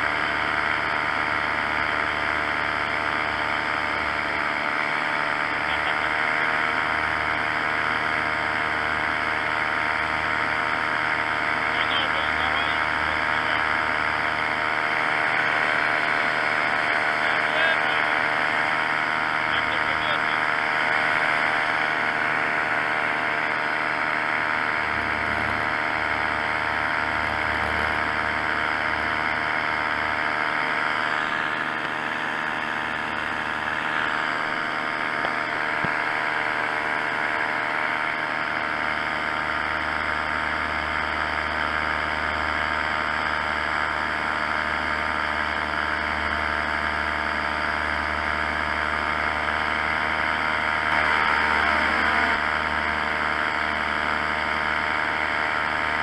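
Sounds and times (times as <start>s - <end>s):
paramotor engine drone: 0.0s - 56.0s.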